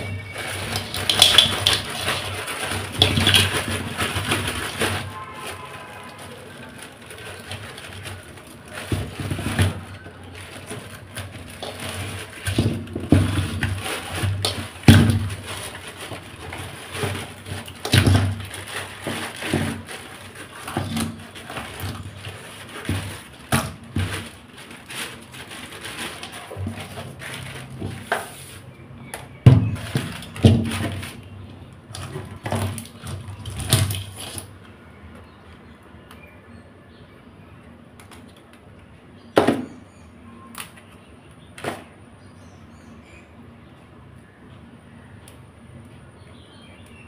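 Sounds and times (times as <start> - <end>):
crab shells clattering against metal pot: 0.0 - 5.4, 6.2 - 28.3
rustling: 0.0 - 34.7.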